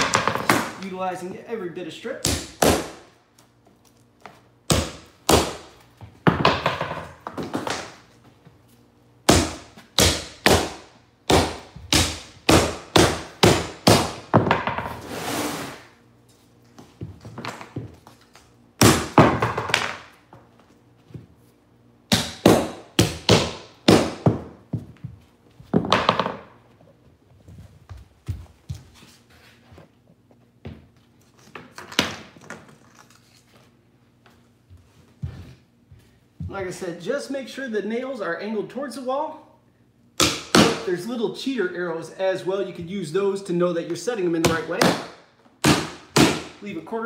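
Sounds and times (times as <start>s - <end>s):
hammer striking nails into wood: 2.2s - 3.0s, 4.7s - 5.6s, 9.3s - 14.6s, 22.1s - 24.5s, 40.2s - 40.9s, 44.4s - 46.6s.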